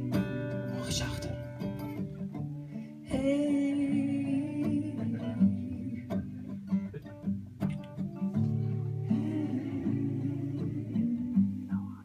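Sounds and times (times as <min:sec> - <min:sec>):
acoustic guitar lullaby: 0:00.0 - 0:12.0.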